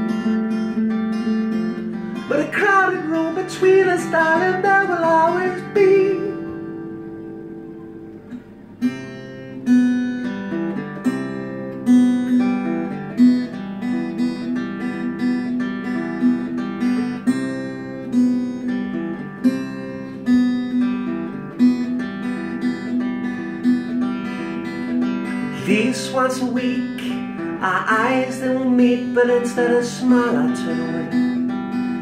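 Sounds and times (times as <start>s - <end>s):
acoustic guitar strumming: 0.0s - 32.0s.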